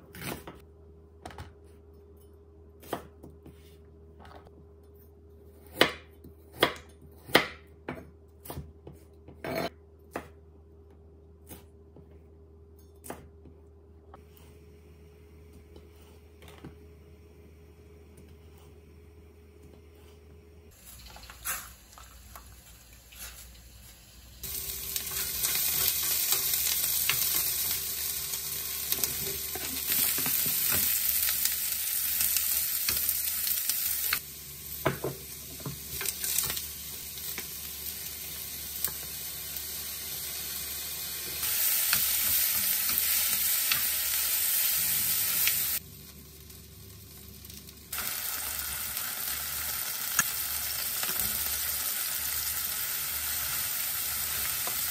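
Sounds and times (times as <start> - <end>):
food sizzling in hot oil: 20.7 - 54.9.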